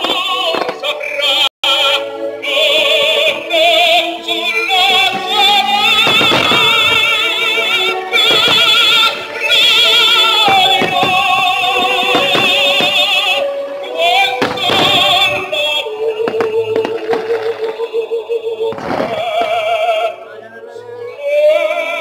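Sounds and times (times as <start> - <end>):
fireworks bangs: 0.0 - 1.4, 4.7 - 18.0, 18.6 - 20.1
operatic singing with vibrato: 0.0 - 22.0
sustained orchestral notes: 1.6 - 22.0.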